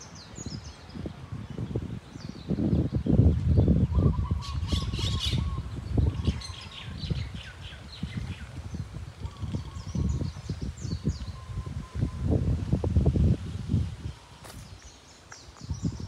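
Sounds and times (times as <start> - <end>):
birds chirping: 0.0 - 12.4, 14.0 - 16.0
wind gusting over microphone: 0.0 - 16.0
leaves rustling: 5.6 - 16.0.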